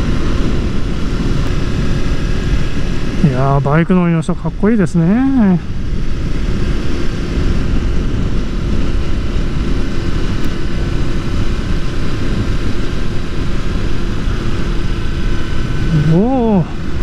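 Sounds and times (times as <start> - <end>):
motorcycle engine droning: 0.0 - 17.0.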